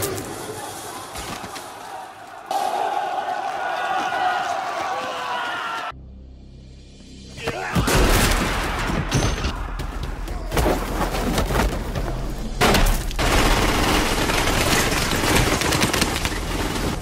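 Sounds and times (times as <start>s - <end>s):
bursts of gunfire: 12.7s - 17.0s.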